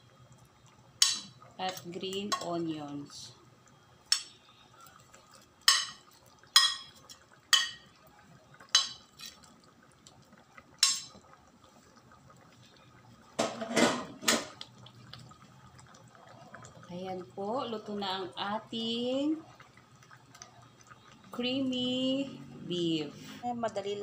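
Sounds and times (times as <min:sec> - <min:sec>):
ladle stirring thick stew: 0:08.6 - 0:12.7.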